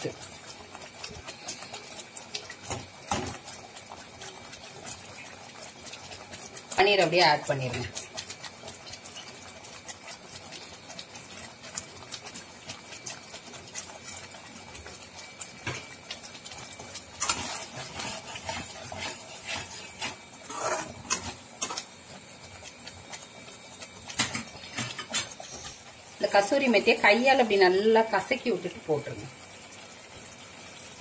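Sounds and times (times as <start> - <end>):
gravy simmering with bubbles popping: 0.0 - 31.0
spoon scraping against pan: 17.2 - 21.9.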